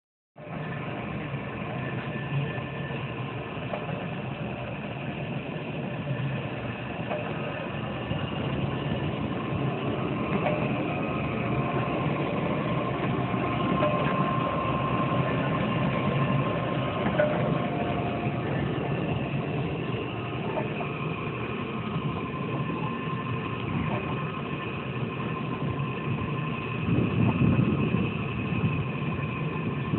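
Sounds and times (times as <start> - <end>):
faint high whine: 0.4 - 29.9
pumpjack running: 0.4 - 29.9.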